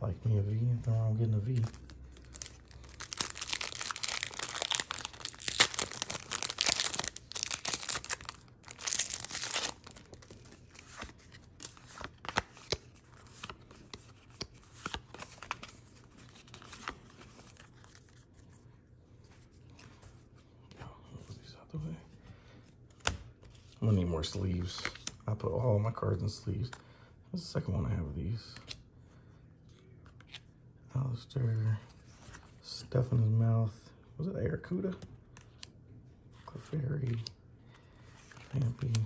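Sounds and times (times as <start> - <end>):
cards clicking and rustling: 1.4 - 18.2
wrapper tearing and crinkling: 1.5 - 12.8.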